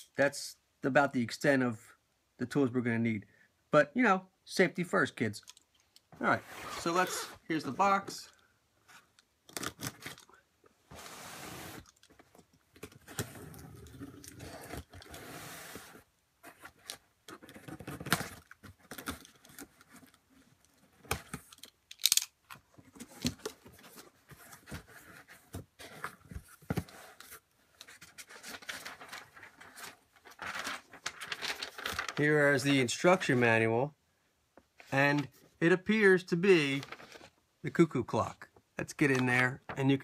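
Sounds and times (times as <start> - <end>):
paper rustling: 22.8 - 32.7, 36.7 - 37.4.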